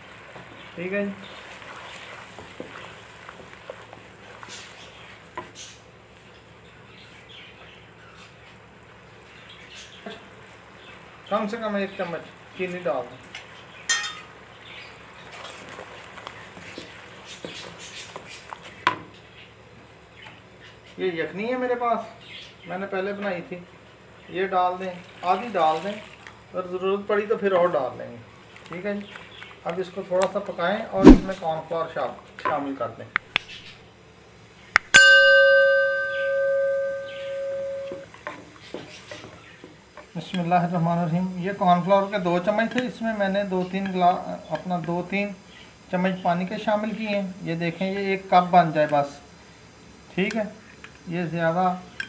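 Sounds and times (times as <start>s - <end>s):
sharp knock: 31.0s - 31.4s
struck bell ringing: 34.9s - 38.0s.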